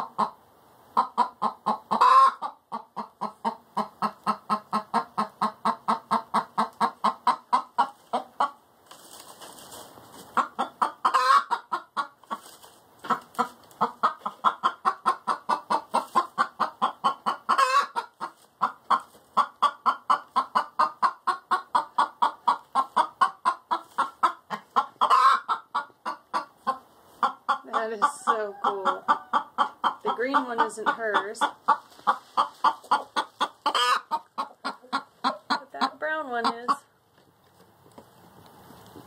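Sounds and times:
hen clucking: 0.0s - 38.3s.

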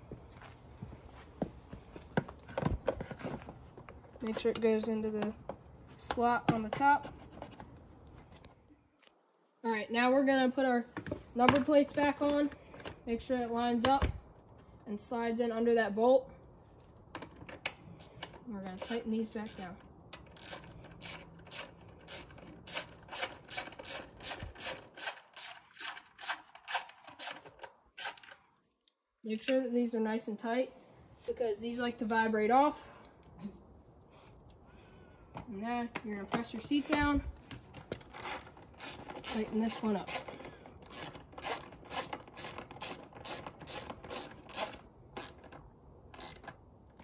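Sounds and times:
ratchet wrench rasping: 18.8s - 28.4s, 38.0s - 45.4s, 46.2s - 46.5s.

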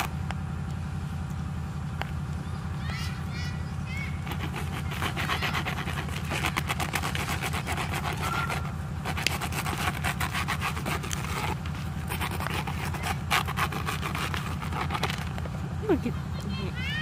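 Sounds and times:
steady low hum: 0.0s - 17.0s
hard object scratching plastic mat: 4.2s - 15.5s.

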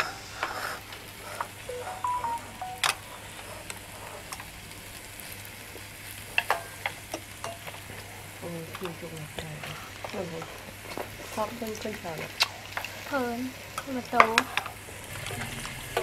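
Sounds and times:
meat sizzling on grill pan: 4.0s - 16.0s.

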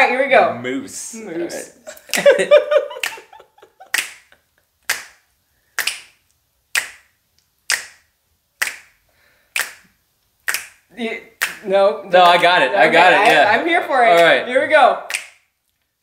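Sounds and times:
fingers snapping a beat: 3.9s - 5.2s, 5.8s - 11.6s, 15.1s - 15.5s.

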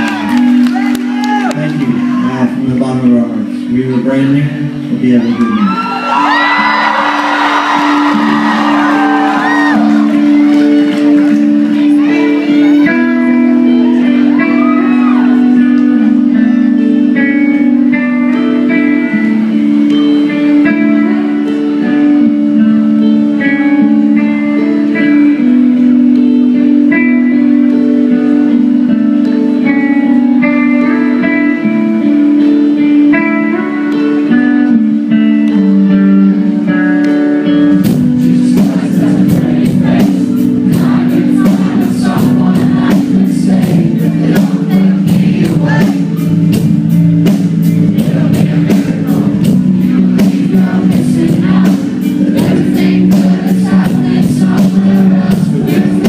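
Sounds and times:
electric guitar picked notes: 0.0s - 56.0s
full band playing: 0.0s - 56.0s
drums keeping a steady beat: 37.8s - 56.0s.

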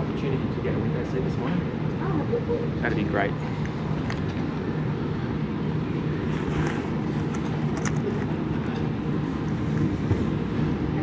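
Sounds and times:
low rumble and hum: 0.0s - 11.0s.

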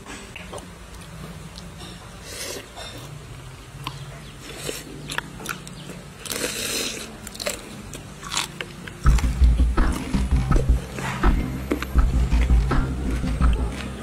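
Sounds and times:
person crunching and chewing: 3.8s - 12.6s
loud low rumble: 9.0s - 14.0s.

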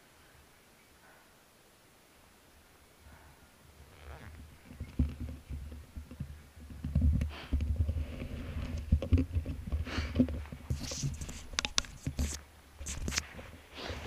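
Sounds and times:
camera handling rustles and clicks: 8.7s - 13.4s.

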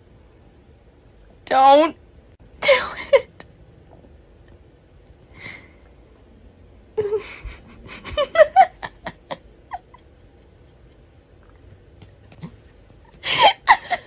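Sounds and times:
woman laughing breathily: 7.0s - 11.1s, 13.1s - 14.0s.

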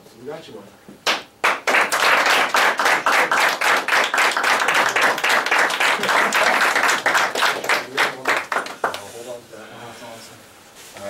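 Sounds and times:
boys clapping: 1.0s - 9.1s.

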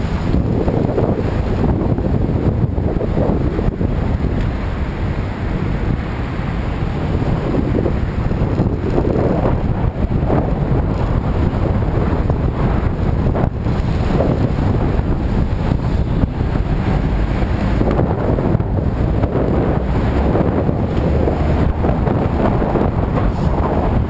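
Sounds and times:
city traffic rumble: 0.0s - 24.0s
wind rush on microphone: 0.0s - 24.0s.

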